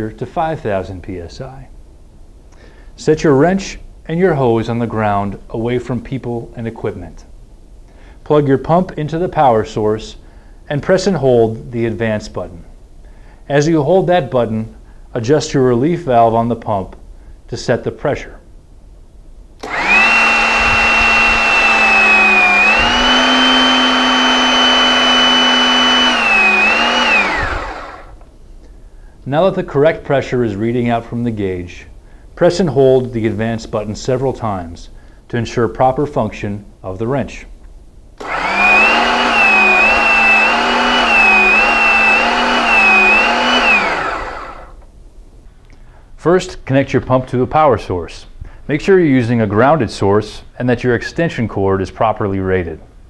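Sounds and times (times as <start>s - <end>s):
hydraulic pump motor whining: 19.6s - 28.2s, 38.2s - 44.7s.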